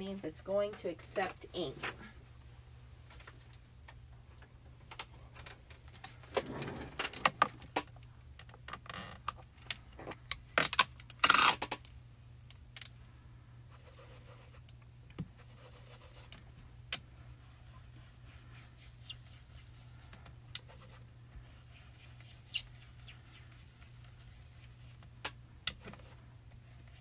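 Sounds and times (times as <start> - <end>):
loud scrape: 6.3 - 7.2
soft rubbing on paper: 13.7 - 14.6, 15.3 - 16.4, 17.3 - 25.1.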